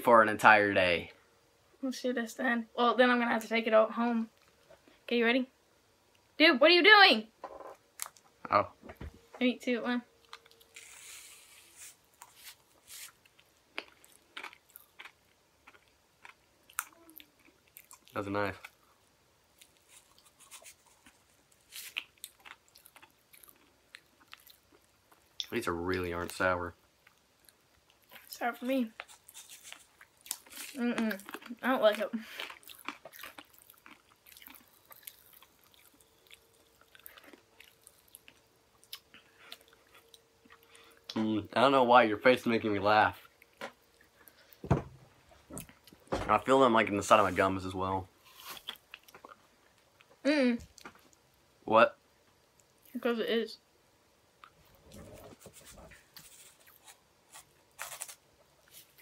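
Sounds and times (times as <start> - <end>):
chewing: 12.2 - 18.8, 19.6 - 25.5, 29.0 - 41.2.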